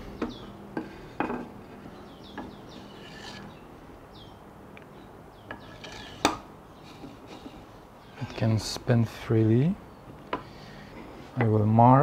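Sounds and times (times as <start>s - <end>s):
wood rubbing: 0.0s - 3.7s, 5.5s - 8.6s.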